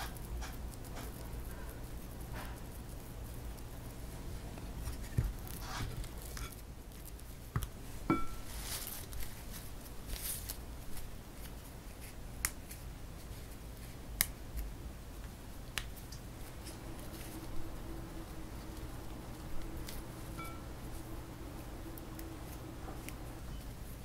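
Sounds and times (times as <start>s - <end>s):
rustling of leaves and stems: 2.2s - 14.0s, 16.0s - 24.0s
sharp clicks and snaps: 14.1s - 16.8s.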